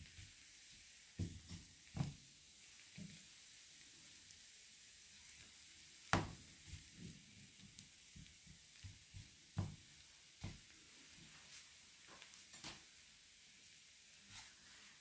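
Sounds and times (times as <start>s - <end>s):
steady faint hiss: 0.0s - 15.0s
hands tapping dough in pan: 1.2s - 2.2s, 6.1s - 10.7s.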